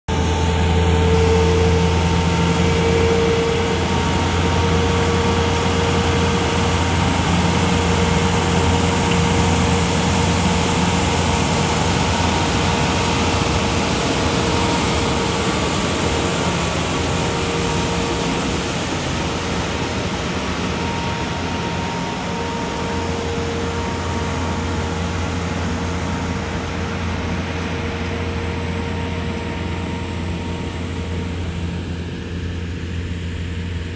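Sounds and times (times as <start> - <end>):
blower whine: 0.1 - 33.9
street sweeper engine drone: 0.1 - 33.9.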